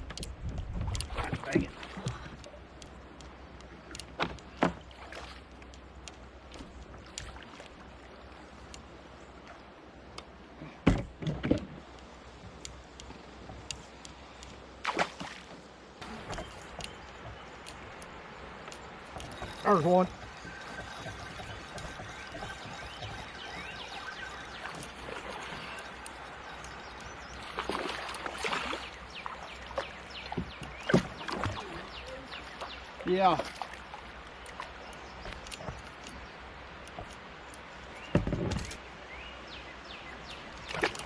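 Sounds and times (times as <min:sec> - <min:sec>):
thumps against kayak hull: 0:10.8 - 0:11.7
fish splashing at water surface: 0:27.4 - 0:29.5.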